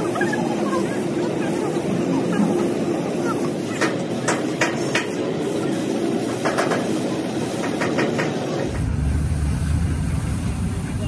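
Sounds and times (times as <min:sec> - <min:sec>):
spray gun hissing bursts: 0:00.0 - 0:08.8.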